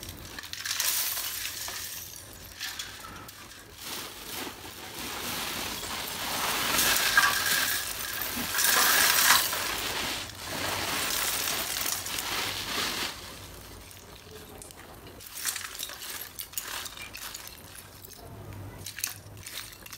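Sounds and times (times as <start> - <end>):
clay pieces clattering in metal sieve: 0.0 - 19.9.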